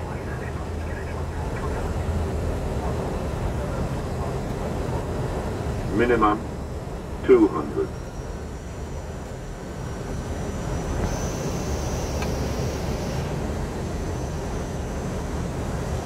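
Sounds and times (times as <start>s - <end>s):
rushing cockpit noise: 0.0s - 16.0s
thin high whine: 7.2s - 16.0s.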